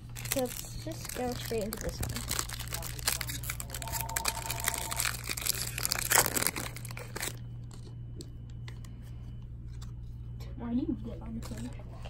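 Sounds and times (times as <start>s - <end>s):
foil wrapper crinkling: 0.0s - 7.9s
low hum: 0.0s - 12.0s.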